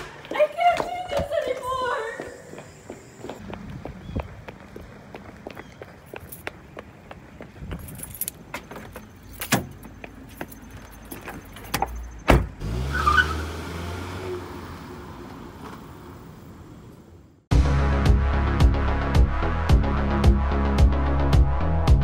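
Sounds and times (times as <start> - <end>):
keys jingling: 7.7 - 12.2
car engine pulling away: 12.1 - 17.2.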